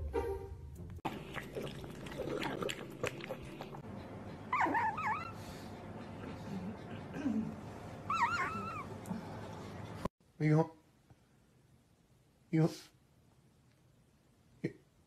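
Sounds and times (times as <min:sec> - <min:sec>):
puppy whimpering squeaks: 0:04.5 - 0:05.4, 0:08.1 - 0:08.9.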